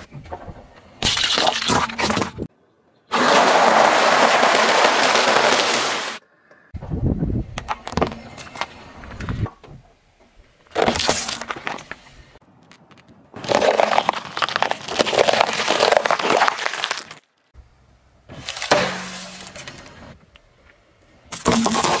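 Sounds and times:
tyre crunching objects: 0:03.1 - 0:06.2, 0:10.7 - 0:12.0, 0:12.6 - 0:17.4.

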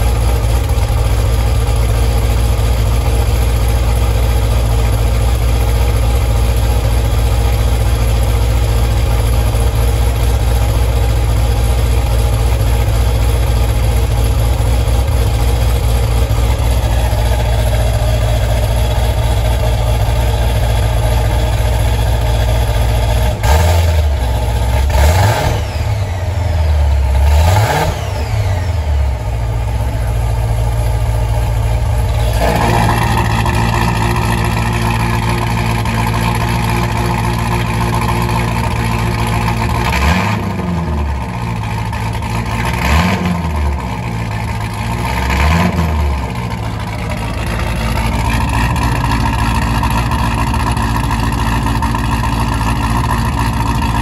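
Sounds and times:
car engine idling and revving: 0:00.0 - 0:54.0.

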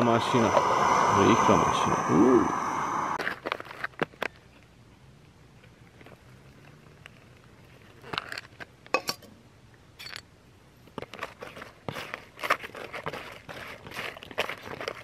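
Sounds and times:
foil pouch crinkling: 0:11.0 - 0:15.0.

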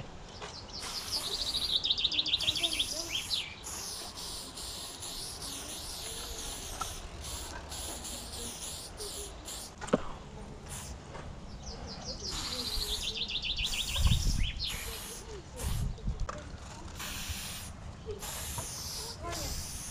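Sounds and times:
small bird trilling: 0:00.7 - 0:09.8, 0:12.1 - 0:15.3
spray-paint can hissing: 0:00.8 - 0:09.8, 0:10.6 - 0:11.0, 0:12.3 - 0:16.0, 0:16.9 - 0:19.9.

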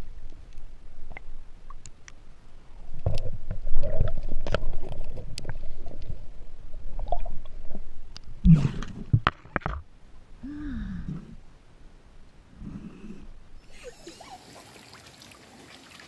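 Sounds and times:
underwater water rumbling: 0:02.9 - 0:09.9.

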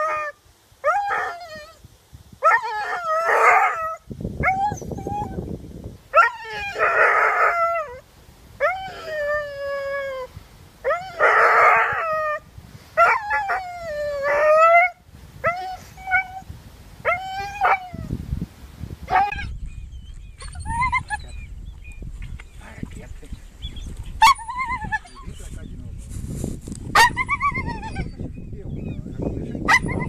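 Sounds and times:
dog howling and yelping: 0:00.0 - 0:01.8, 0:02.4 - 0:05.4, 0:06.1 - 0:08.0, 0:08.6 - 0:12.4, 0:13.0 - 0:18.1, 0:19.1 - 0:19.5, 0:20.4 - 0:21.4, 0:24.2 - 0:25.3, 0:27.0 - 0:28.2.

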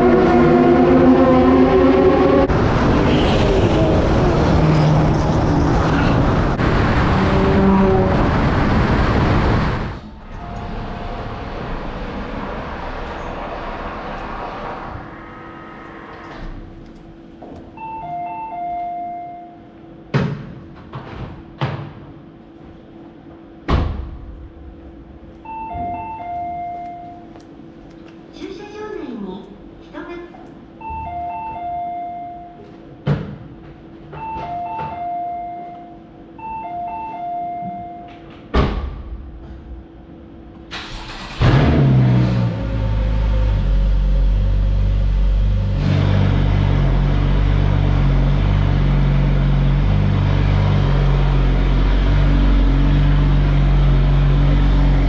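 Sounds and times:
car engine starting: 0:40.7 - 0:55.0
parking machinery running down: 0:40.7 - 0:55.0.

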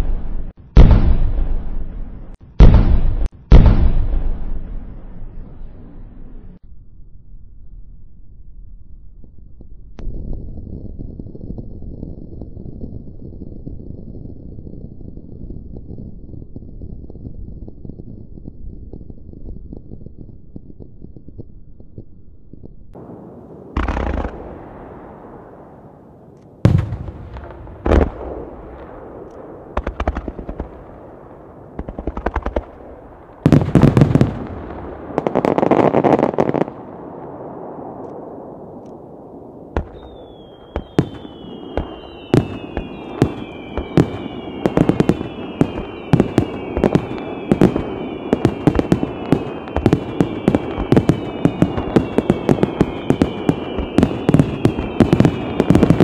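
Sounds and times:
fireworks booming bursts: 0:00.0 - 0:06.4, 0:22.9 - 0:56.0
rapid firework pops: 0:23.8 - 0:24.4, 0:26.7 - 0:30.9, 0:31.8 - 0:34.6, 0:39.8 - 0:56.0
falling firework whistles: 0:39.8 - 0:56.0
fireworks crackling hiss: 0:39.8 - 0:56.0.

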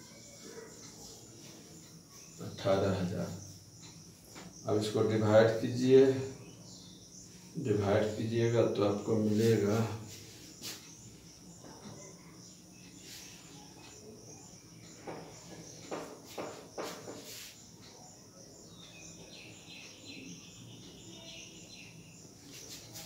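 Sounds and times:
faint high pulsing chirp: 0:00.0 - 0:23.0
soft knocks and taps: 0:15.0 - 0:17.4.

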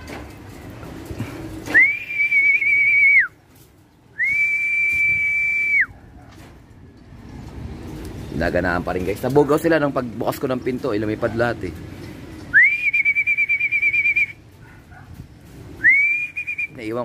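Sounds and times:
person whistling: 0:01.7 - 0:03.4, 0:04.2 - 0:05.9, 0:12.5 - 0:14.4, 0:15.8 - 0:16.8.

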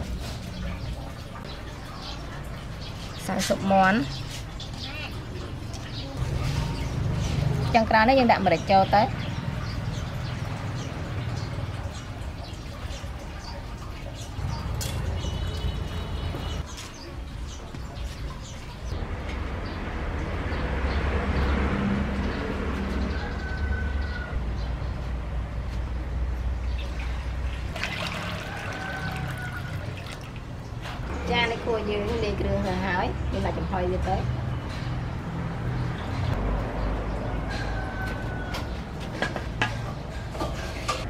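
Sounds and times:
water pouring into a metal wok: 0:26.8 - 0:30.6.

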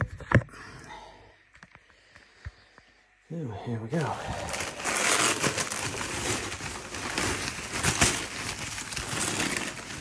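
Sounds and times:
paper wrapping rustling and tearing: 0:03.9 - 0:10.0.

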